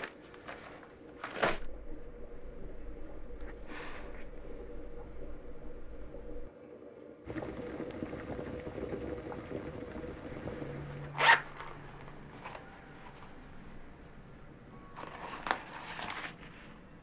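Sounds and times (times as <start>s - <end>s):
liquid bubbling in a pot: 7.2s - 11.1s.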